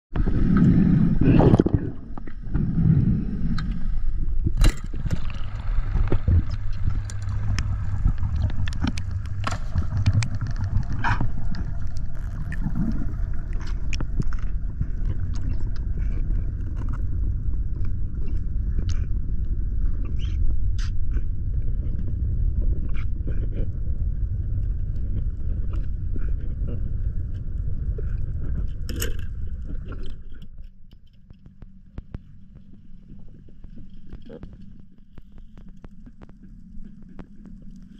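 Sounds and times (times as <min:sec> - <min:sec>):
low rumble of moving water: 0:00.1 - 0:37.9.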